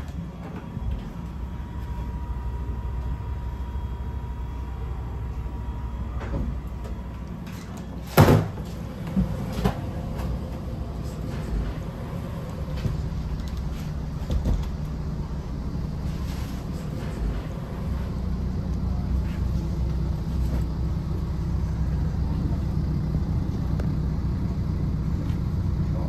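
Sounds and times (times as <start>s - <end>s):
railbus engine rumble: 0.0s - 26.0s
door banging shut: 8.1s - 8.6s.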